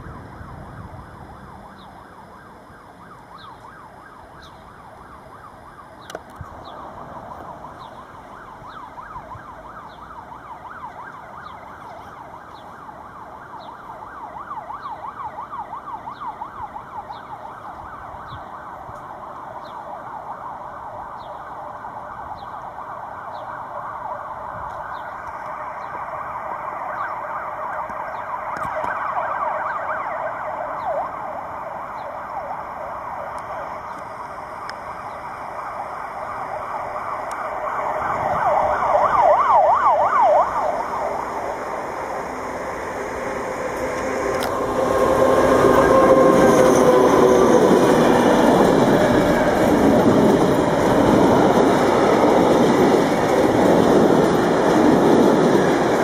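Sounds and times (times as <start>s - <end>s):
wavering siren: 0.0s - 56.0s
freight train approaching: 5.9s - 28.4s, 29.3s - 56.0s.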